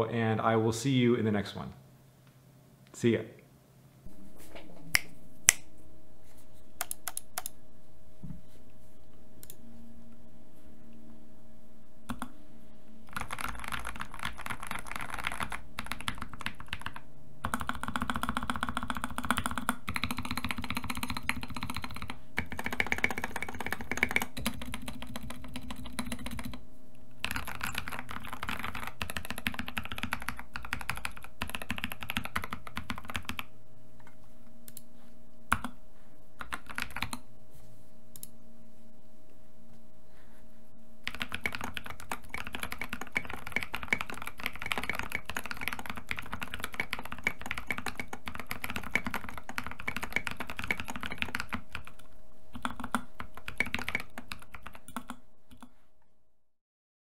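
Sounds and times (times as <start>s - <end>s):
mechanical keyboard typing: 13.1s - 26.6s, 27.2s - 33.5s, 36.4s - 37.2s, 41.0s - 55.7s.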